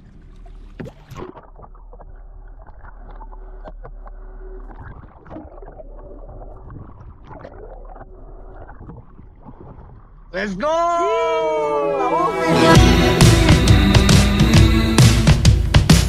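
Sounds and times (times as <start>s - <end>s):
underwater sloshing and gurgling: 0.0s - 10.3s
water splashes: 0.0s - 10.3s.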